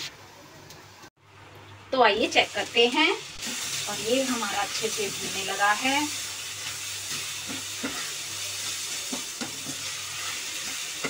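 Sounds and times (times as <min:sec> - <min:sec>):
papaya sizzling in ghee: 0:01.9 - 0:11.0
spatula scraping pan: 0:03.4 - 0:11.0.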